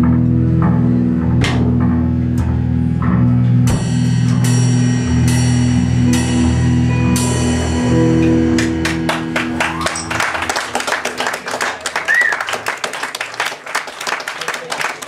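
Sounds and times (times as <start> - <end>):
held electric guitar notes: 0.0 - 12.6
audience applause: 8.2 - 15.0
short whistle: 12.1 - 12.5.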